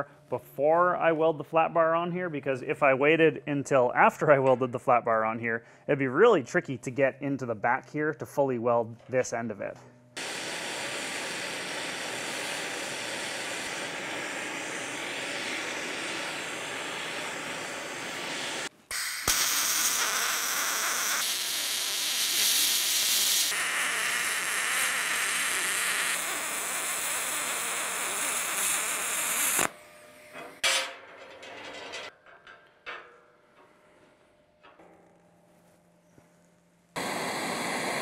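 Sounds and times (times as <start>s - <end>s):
welding arc hissing: 10.2s - 29.8s, 37.0s - 38.0s.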